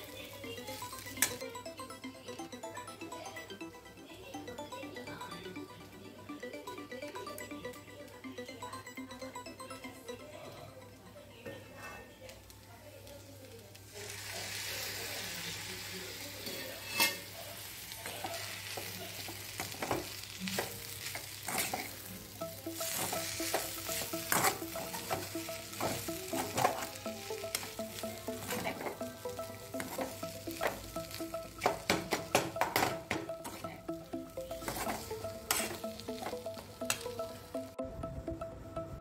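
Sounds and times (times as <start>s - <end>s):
food sizzling in a metal pan: 0.0s - 1.6s, 12.4s - 33.8s, 34.6s - 37.5s.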